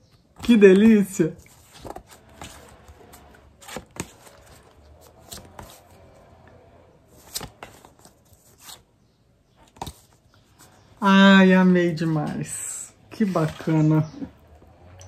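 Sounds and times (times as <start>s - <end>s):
postcards rustling and flicking: 0.2s - 9.0s, 9.6s - 10.8s.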